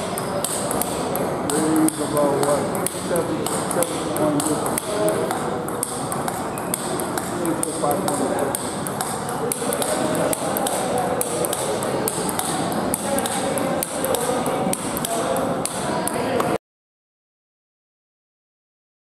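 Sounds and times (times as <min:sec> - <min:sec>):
table tennis balls clicking: 0:00.0 - 0:16.6.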